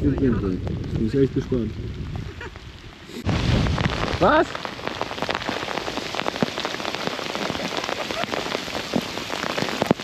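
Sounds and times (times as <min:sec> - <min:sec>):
heavy rain falling: 0:00.0 - 0:10.0.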